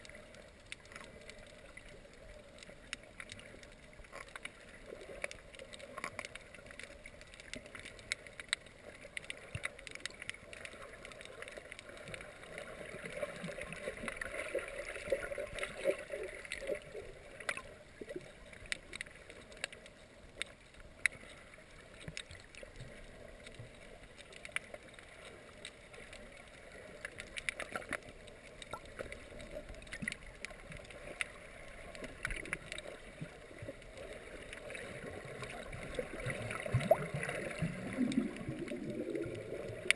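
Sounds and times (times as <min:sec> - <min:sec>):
sharp underwater clicks: 0:00.0 - 0:39.9
muffled underwater gurgling rush: 0:21.2 - 0:39.9.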